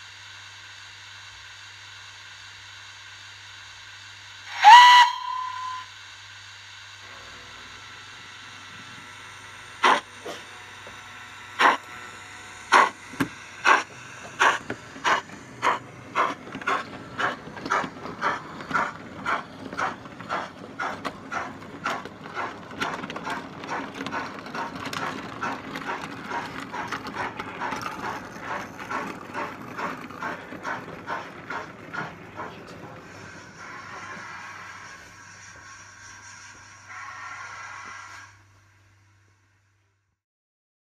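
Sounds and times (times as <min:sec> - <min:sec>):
low rolling hum: 0:05.1 - 0:36.4
model train wheels clicking: 0:11.6 - 0:12.0, 0:12.6 - 0:38.3.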